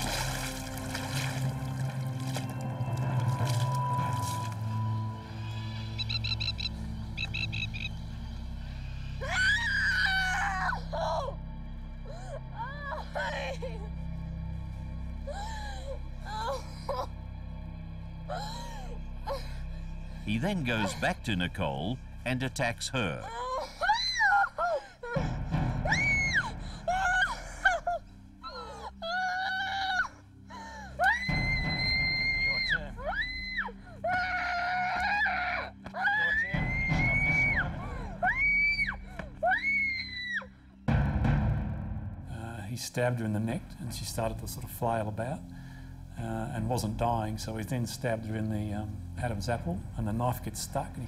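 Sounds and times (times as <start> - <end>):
low drone: 0.0 - 21.3
low dark music: 0.0 - 51.0
girl screaming: 31.0 - 40.5.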